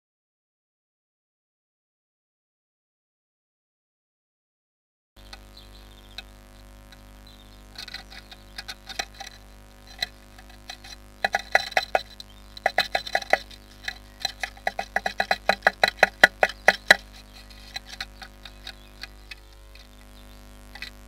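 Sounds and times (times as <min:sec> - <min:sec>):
bird pecking at wood: 0:07.7 - 0:20.1, 0:20.7 - 0:21.0.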